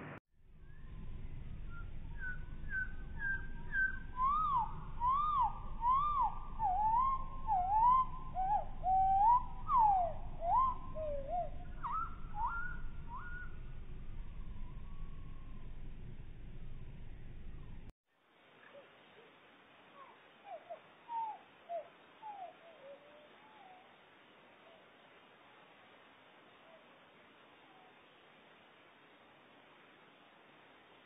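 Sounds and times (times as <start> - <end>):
slowed bird song: 0.4 - 17.9, 20.0 - 25.0.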